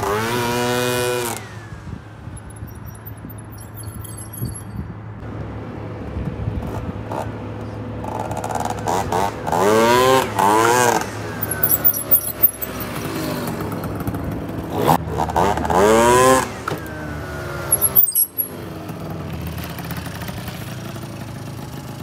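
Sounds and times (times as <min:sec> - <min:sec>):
scooter engine revving past: 0:00.0 - 0:02.0, 0:06.5 - 0:22.0.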